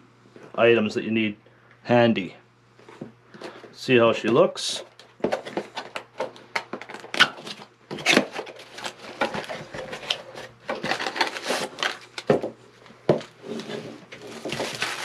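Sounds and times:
cardboard scraping and knocking: 13.1 - 15.0
wrapping rustling: 13.6 - 15.0.

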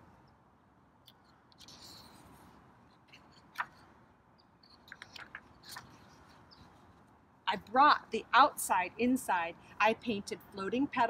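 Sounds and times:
paper rustling: 1.2 - 3.9, 4.6 - 7.1.

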